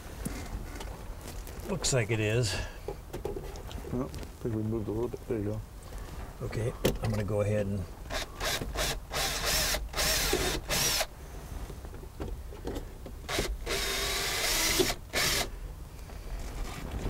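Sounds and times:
drill driving screw into plastic: 8.1 - 11.1, 13.3 - 15.5.

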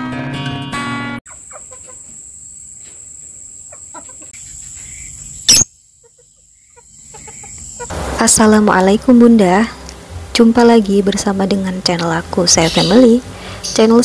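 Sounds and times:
chickens clucking: 1.3 - 8.2.

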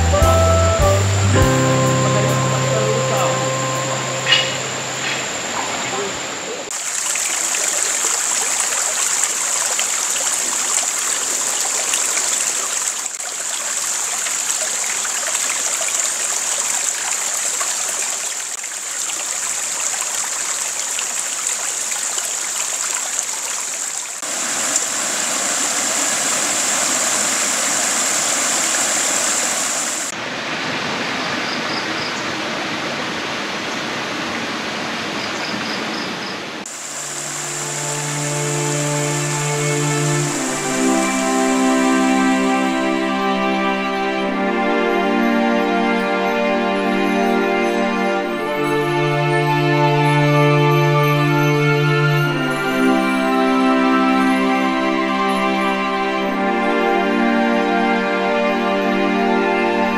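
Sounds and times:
river water rushing: 1.6 - 35.2, 36.6 - 59.9.

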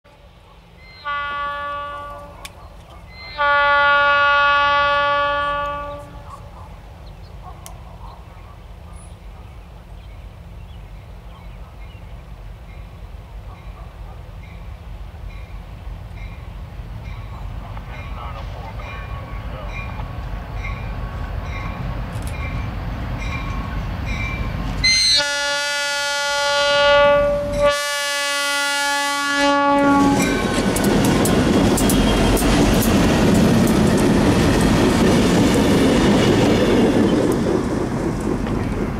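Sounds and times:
diesel locomotives rumbling: 0.1 - 38.9
distant locomotive air horn: 0.8 - 2.5, 3.1 - 6.3, 24.8 - 30.5.

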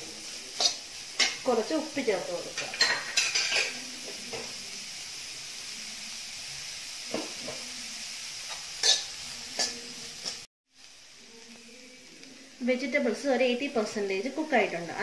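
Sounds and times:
vegetables sizzling in oil: 0.0 - 15.0
spoon scraping and knocking pan: 0.6 - 1.5, 2.5 - 4.6, 7.1 - 7.8, 8.5 - 10.4.

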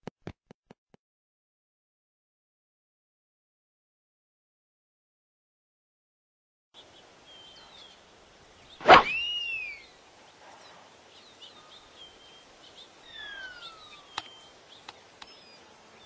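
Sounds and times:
small birds chirping: 6.8 - 16.0
whistle rising and falling: 8.8 - 9.8
faint clicks: 14.1 - 15.4.

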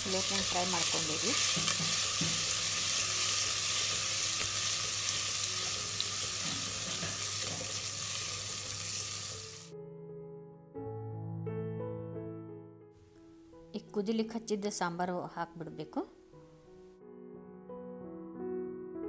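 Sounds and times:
spices sizzling in hot oil: 0.0 - 9.7
soft piano music: 0.0 - 19.0.

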